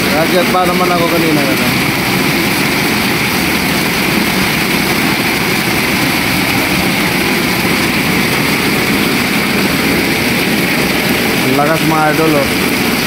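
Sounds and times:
heavy rain pouring: 0:00.0 - 0:13.0.

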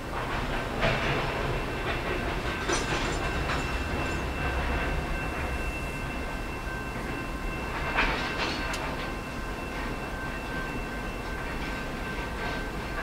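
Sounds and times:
train clanks and clicks: 0:00.0 - 0:13.0
train rumbling over bridge: 0:00.0 - 0:13.0
faint high whine: 0:03.2 - 0:08.0.

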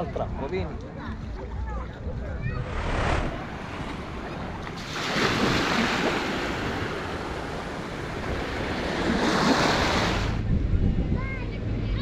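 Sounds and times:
sea waves washing ashore: 0:02.4 - 0:10.4.

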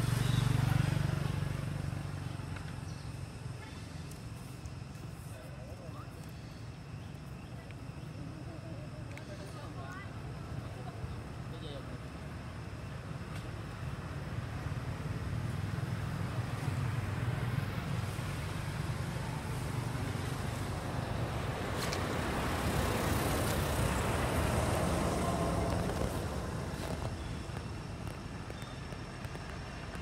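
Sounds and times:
vehicle passing: 0:00.0 - 0:02.6, 0:14.4 - 0:28.1
traffic rumble: 0:00.0 - 0:30.0.

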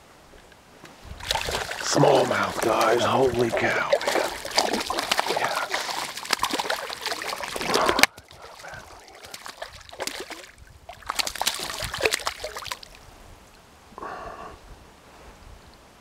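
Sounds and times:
fish splashing in water: 0:01.2 - 0:13.0.

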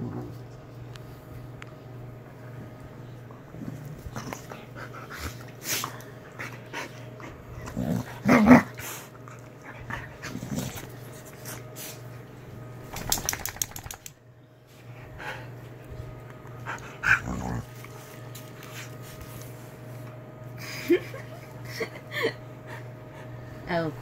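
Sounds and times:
dogs play growling: 0:00.0 - 0:00.6, 0:02.5 - 0:11.7, 0:15.0 - 0:19.0
sharp ticks: 0:13.0 - 0:14.1.

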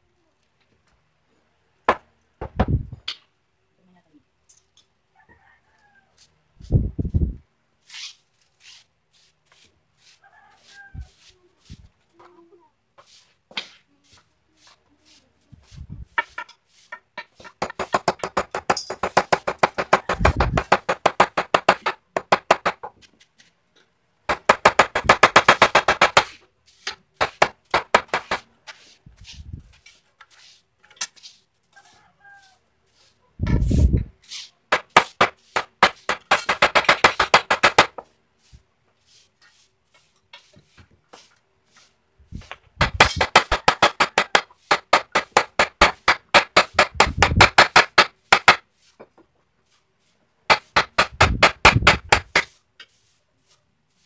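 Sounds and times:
hammer knocking on wood: 0:17.2 - 0:23.0, 0:24.3 - 0:26.3, 0:34.7 - 0:38.0, 0:42.8 - 0:48.6, 0:50.5 - 0:52.5.

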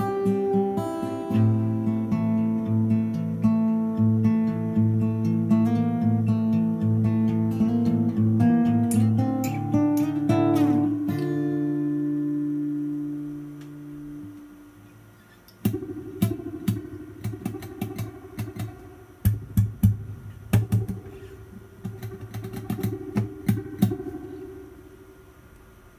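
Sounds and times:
acoustic guitar with spring reverb: 0:00.0 - 0:25.5
sharp taps and clicks: 0:15.5 - 0:21.2, 0:21.8 - 0:24.3.

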